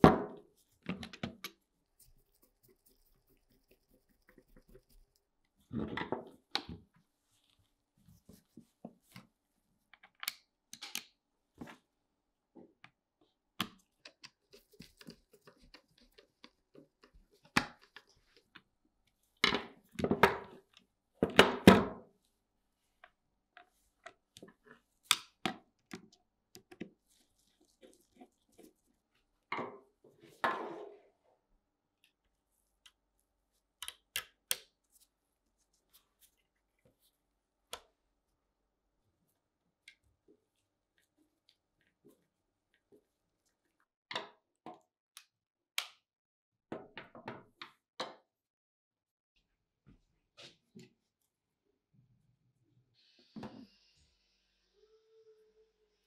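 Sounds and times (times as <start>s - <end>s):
rustling and scraping handling: 7.0s - 9.4s, 13.9s - 19.9s, 26.0s - 31.1s.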